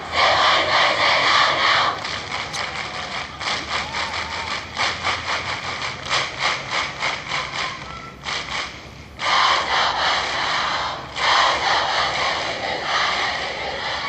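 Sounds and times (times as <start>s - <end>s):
crowd shouting: 0.0s - 5.0s, 9.2s - 14.0s
crowd clapping in time: 1.5s - 9.1s.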